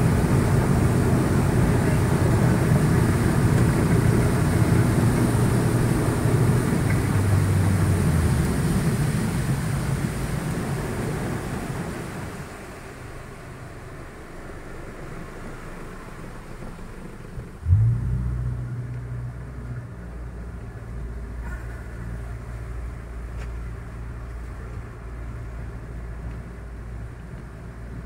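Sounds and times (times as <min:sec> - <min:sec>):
boat engine starting and running: 0:00.0 - 0:28.0
rushing noise: 0:17.6 - 0:21.1.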